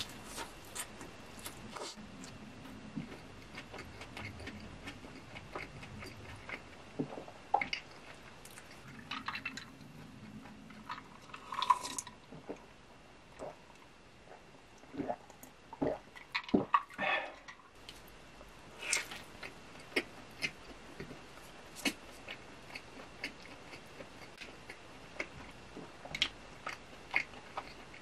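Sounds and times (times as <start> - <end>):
chewing with wet mouth clicks: 0.0 - 12.6, 21.8 - 28.0.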